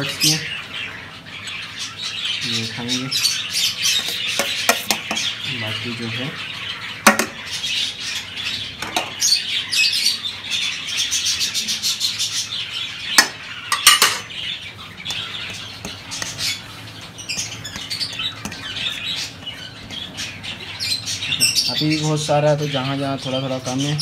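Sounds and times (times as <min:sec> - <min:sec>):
budgies chattering and chirping: 0:00.0 - 0:24.0
spoon clinking against steel plate: 0:13.7 - 0:14.3.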